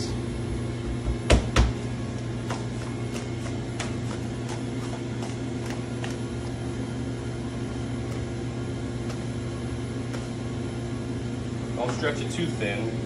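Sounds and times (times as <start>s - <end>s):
kitchen machinery humming: 0.0s - 13.0s
pizza dough slapping: 1.2s - 6.6s, 8.0s - 10.5s.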